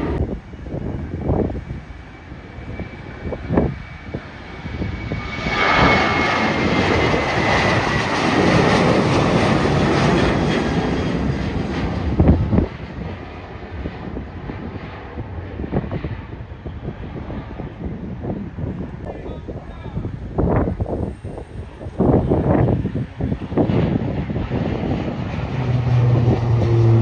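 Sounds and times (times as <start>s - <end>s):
high engine whine: 0.0s - 27.0s
jet engines roaring: 0.0s - 27.0s.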